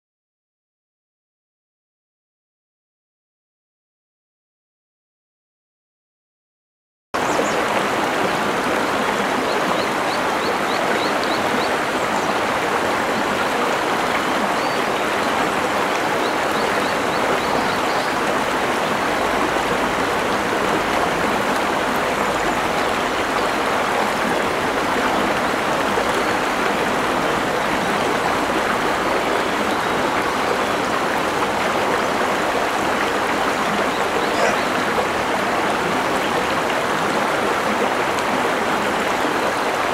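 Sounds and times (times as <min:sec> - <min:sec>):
river water flowing over rocks: 0:07.2 - 0:39.9.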